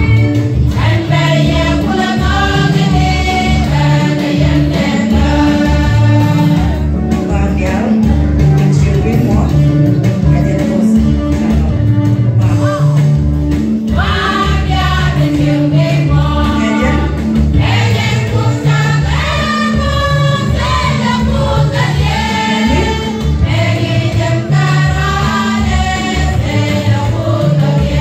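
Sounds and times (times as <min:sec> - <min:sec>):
women's choir singing a hymn: 0:00.0 - 0:07.0, 0:13.9 - 0:28.0.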